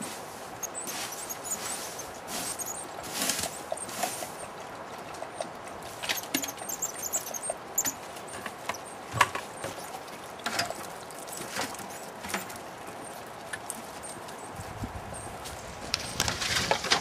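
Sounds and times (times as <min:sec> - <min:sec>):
claws scratching on wood: 0:00.0 - 0:04.5, 0:05.9 - 0:14.7.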